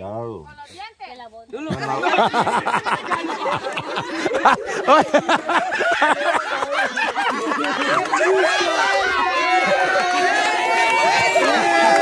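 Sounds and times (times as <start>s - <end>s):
group of people laughing: 1.6s - 12.0s.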